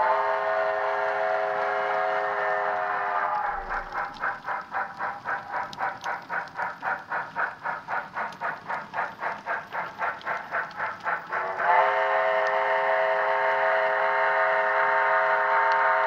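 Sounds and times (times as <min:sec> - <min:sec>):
steam whistle chord: 0:00.0 - 0:03.9, 0:11.4 - 0:16.0
steam locomotive exhaust chuffs: 0:00.0 - 0:16.0.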